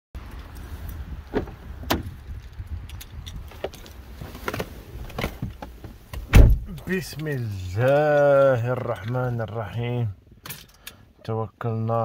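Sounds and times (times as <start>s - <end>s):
car door opening clicks: 1.3s - 2.2s, 4.4s - 6.9s.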